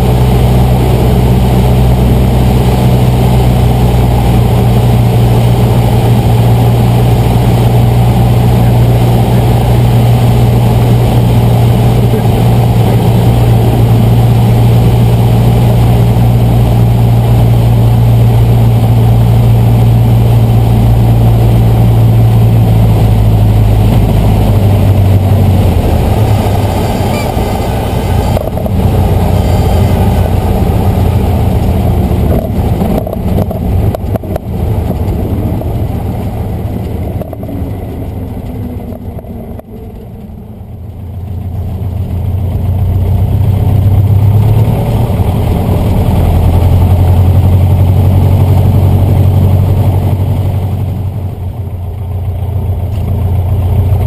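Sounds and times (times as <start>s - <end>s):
light aircraft engine and propeller: 0.0s - 54.0s.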